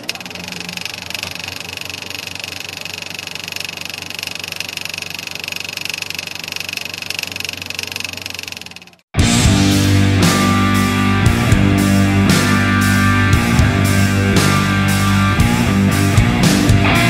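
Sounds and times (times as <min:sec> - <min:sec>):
film projector whirring: 0:00.0 - 0:09.1.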